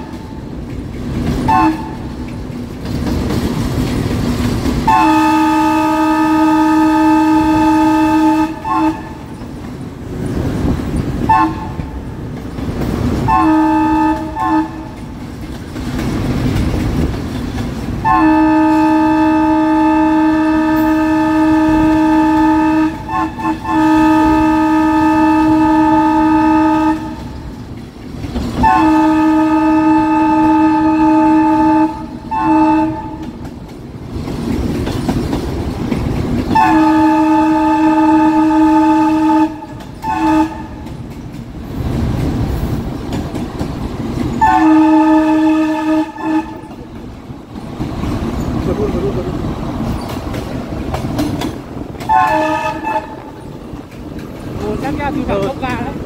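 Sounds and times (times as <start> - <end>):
locomotive diesel engine rumble: 0.0 - 56.0
locomotive air horn blasts: 1.5 - 2.0, 4.9 - 9.3, 11.3 - 11.8, 13.2 - 15.0, 18.0 - 27.2, 28.6 - 33.2, 36.5 - 40.8, 44.4 - 46.8, 52.0 - 53.4.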